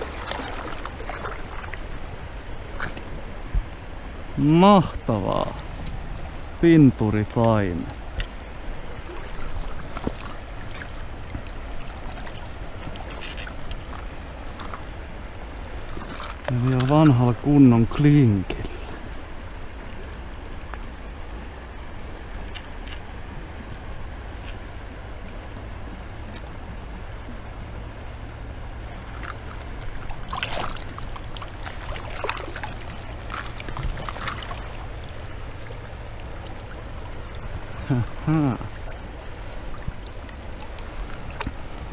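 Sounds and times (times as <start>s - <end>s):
small splashes: 0.0s - 1.9s, 9.0s - 14.9s, 28.8s - 41.8s
river rapids rushing: 0.0s - 2.8s
river rapids flowing: 0.0s - 6.9s, 28.6s - 41.9s.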